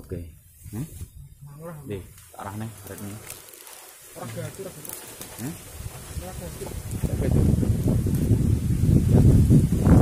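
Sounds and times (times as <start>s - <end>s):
microphone buffeting rumble: 4.2s - 10.0s.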